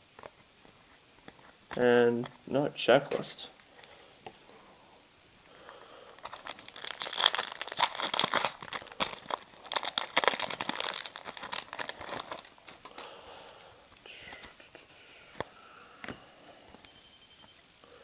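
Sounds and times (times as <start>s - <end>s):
foil wrapper crinkling: 6.0s - 13.1s.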